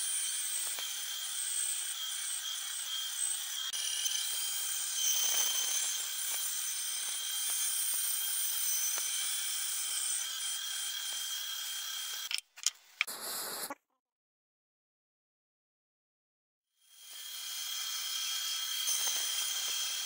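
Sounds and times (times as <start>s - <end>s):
bandsaw cutting wood: 0.0s - 12.3s, 16.9s - 20.0s.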